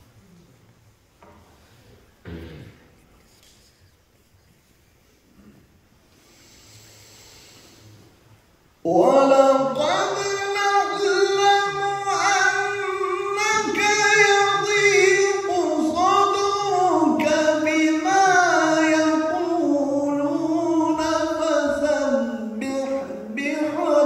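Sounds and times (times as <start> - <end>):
man reciting melodically: 8.8 - 24.0.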